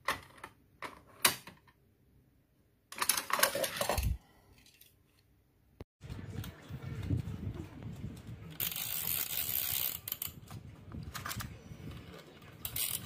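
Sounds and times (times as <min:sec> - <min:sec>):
plastic toy clicking and clattering: 0:02.9 - 0:05.0, 0:12.6 - 0:13.0.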